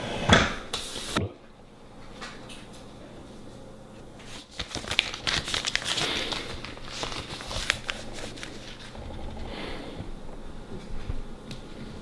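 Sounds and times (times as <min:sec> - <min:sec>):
paper crumpling: 0:04.2 - 0:09.0.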